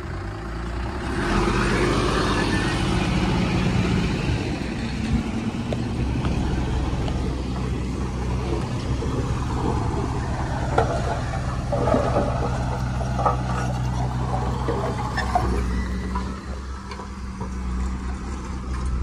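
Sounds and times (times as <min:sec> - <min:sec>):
heavy diesel machinery running: 0:00.0 - 0:19.0.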